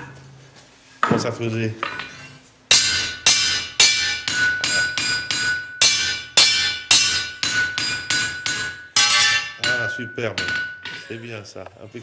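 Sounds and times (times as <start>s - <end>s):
hammer striking anvil: 2.7s - 11.1s.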